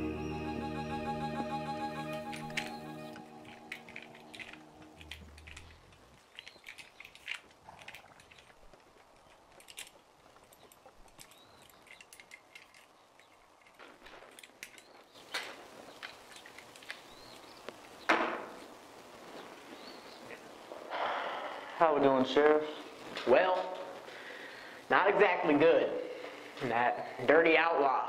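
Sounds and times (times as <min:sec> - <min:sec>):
small clicks and handling noises: 0:02.3 - 0:17.8.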